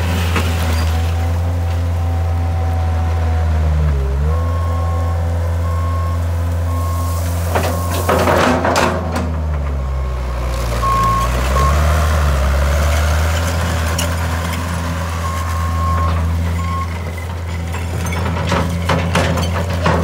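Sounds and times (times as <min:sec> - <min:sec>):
tracks and bucket clatter: 0:00.0 - 0:01.9, 0:06.7 - 0:20.0
loader engine running: 0:00.0 - 0:20.0
high warning beeper: 0:04.4 - 0:08.1.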